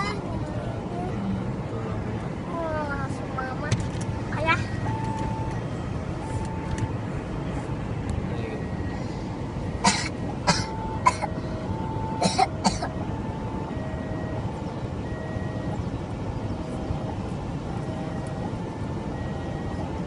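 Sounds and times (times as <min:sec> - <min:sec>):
idling traffic hum: 0:00.0 - 0:20.0
person coughing: 0:09.8 - 0:11.3, 0:12.2 - 0:12.9.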